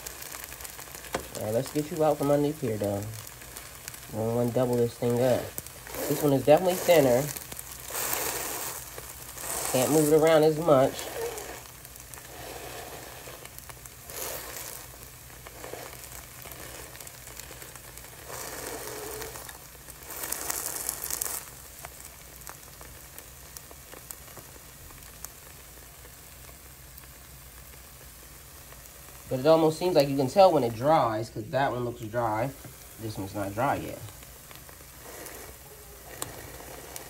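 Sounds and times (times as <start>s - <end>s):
batter sizzling in a frying pan: 0.0s - 37.0s.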